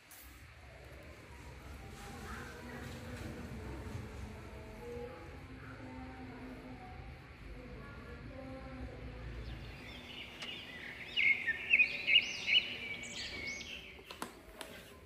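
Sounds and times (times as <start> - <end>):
background noise: 0.0 - 15.0
small bird chirping: 9.4 - 14.1
faint clicks: 10.3 - 10.6.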